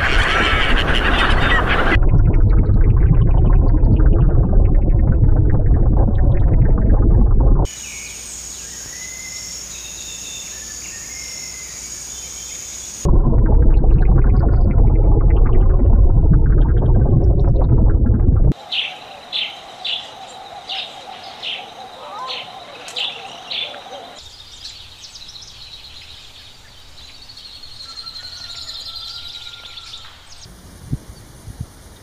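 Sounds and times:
loud low rumble: 1.9 - 7.7, 13.1 - 18.6
thin high bird song: 7.7 - 13.0, 18.6 - 30.5.

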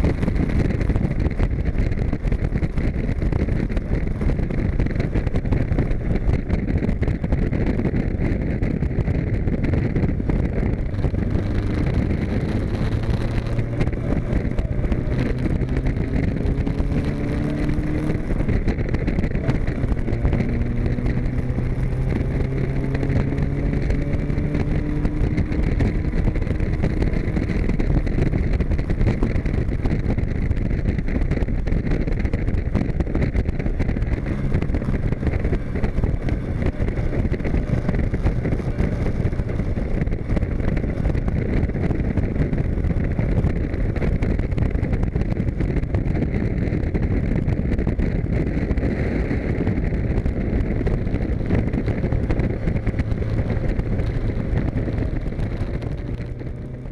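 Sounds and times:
sports car engine running: 0.0 - 56.9
wind and road noise: 0.0 - 56.9.

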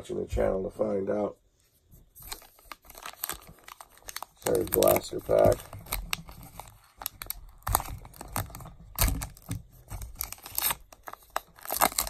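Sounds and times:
card pack wrapper tearing: 2.2 - 12.0.

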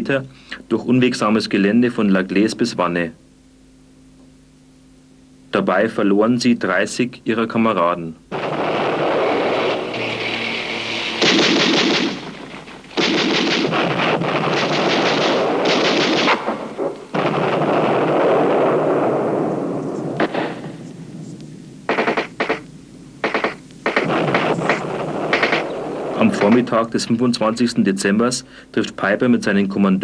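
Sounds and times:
machine-gun fire: 8.3 - 20.8, 21.9 - 26.9
sharp gunshots: 8.3 - 20.8, 21.9 - 26.9.

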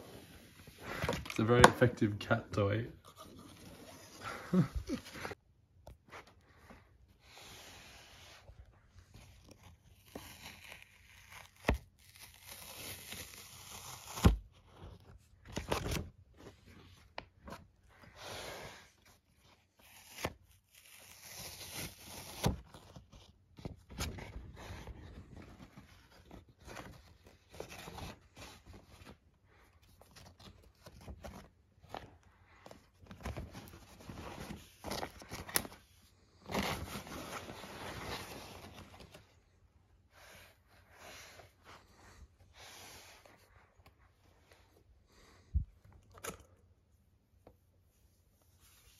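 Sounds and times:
paper wrap tearing and rustling: 9.5 - 14.5, 19.8 - 23.1.

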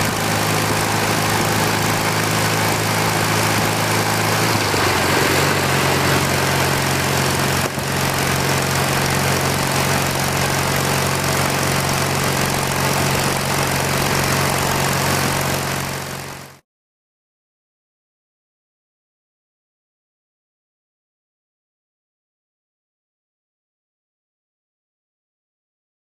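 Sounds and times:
wind and road noise: 0.0 - 16.5
motorcycle engine running: 0.0 - 16.6.

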